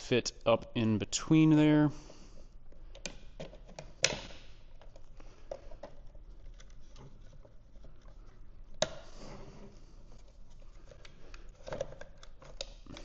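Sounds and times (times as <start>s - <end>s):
plastic fuel pump parts clicking: 2.7s - 9.1s, 10.5s - 13.0s.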